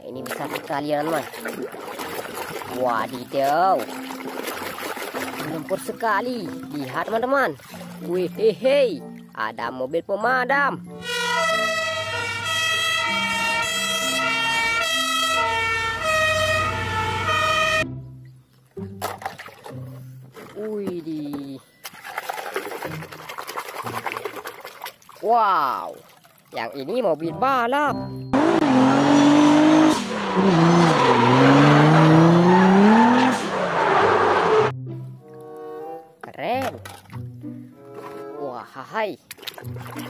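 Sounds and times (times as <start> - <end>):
tyres squealing: 11.0 - 14.8
two-tone fire engine siren: 11.0 - 17.9
engine at high revs: 28.4 - 34.7.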